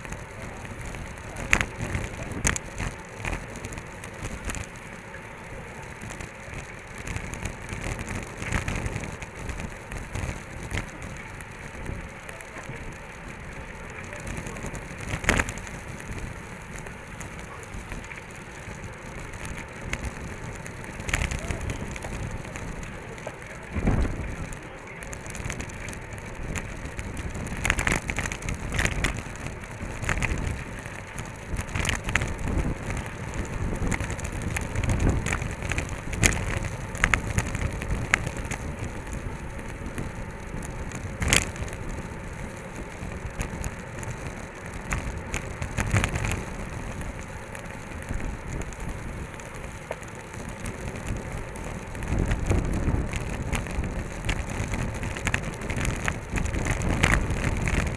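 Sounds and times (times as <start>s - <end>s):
bike clicks and knocks: 0.0s - 57.9s
bike tyres hissing on asphalt: 0.0s - 57.9s
wind over microphone: 17.2s - 57.9s.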